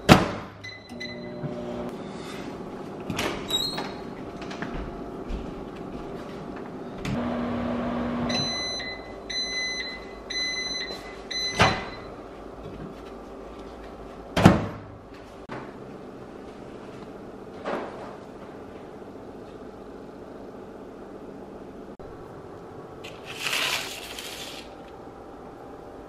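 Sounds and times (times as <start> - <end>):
microwave humming: 0.0 - 26.0
microwave beeps: 0.6 - 1.8, 8.0 - 12.2.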